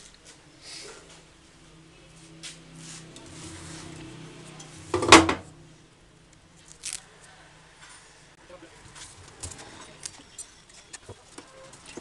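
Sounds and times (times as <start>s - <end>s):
metal tank clunking on table: 4.9s - 5.5s.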